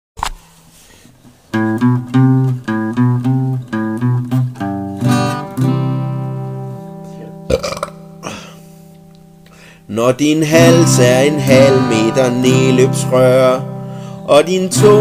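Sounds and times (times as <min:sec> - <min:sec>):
plucked string instrument melody: 0:01.6 - 0:08.2.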